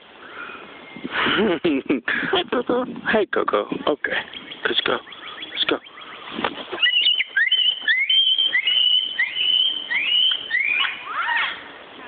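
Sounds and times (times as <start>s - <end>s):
rising whistles: 6.8s - 11.1s.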